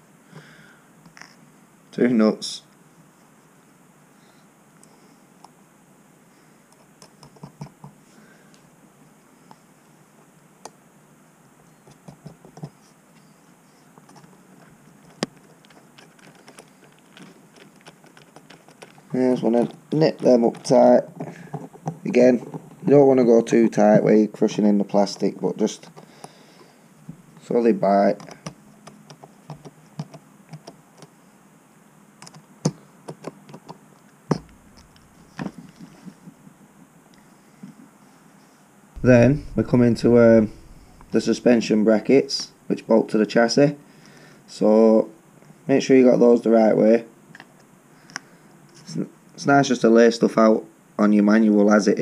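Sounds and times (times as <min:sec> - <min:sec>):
small clicks and taps of nuts: 0:14.0 - 0:22.7.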